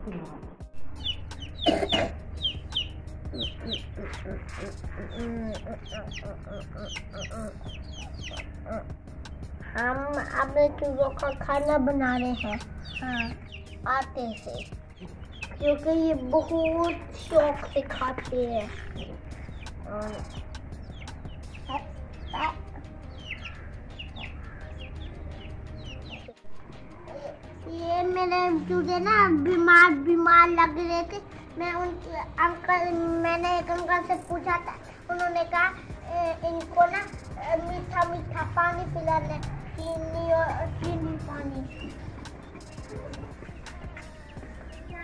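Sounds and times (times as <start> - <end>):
chicks peeping: 1.0 - 9.4, 10.2 - 26.4, 39.4 - 45.0
clucking calls: 1.0 - 9.4.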